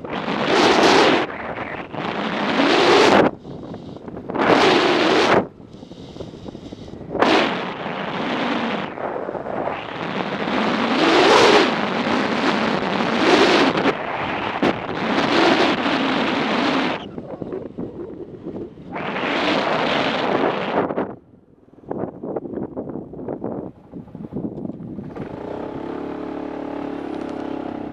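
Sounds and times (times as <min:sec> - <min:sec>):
wind buffeting microphone: 0:00.0 - 0:27.9
faint motorcycle engine: 0:22.6 - 0:27.9.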